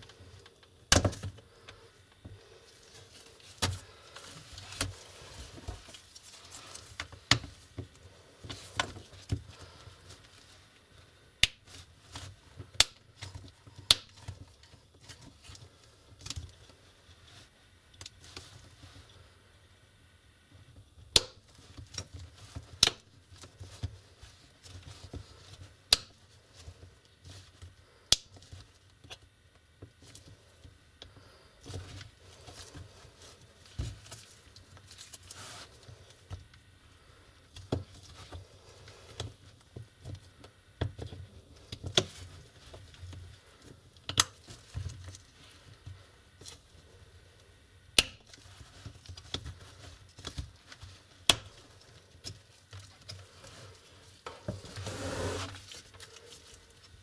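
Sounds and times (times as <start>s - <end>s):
plastic scraping and handling: 0.0s - 10.7s, 48.2s - 57.0s.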